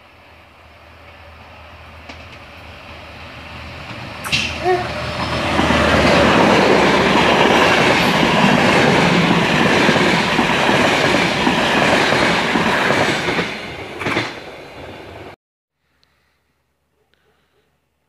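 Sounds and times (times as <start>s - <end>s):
train wheels on rails: 1.0s - 15.4s.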